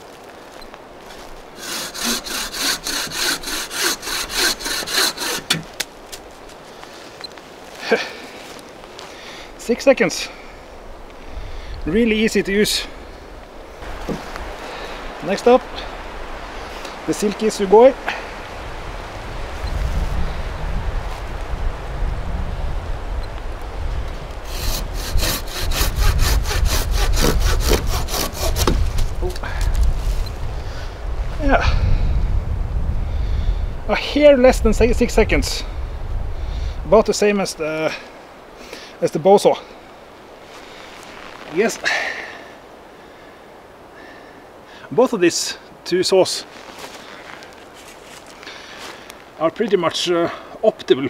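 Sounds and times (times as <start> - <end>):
bow saw cutting log: 1.1 - 6.3, 13.8 - 14.4, 24.4 - 29.3.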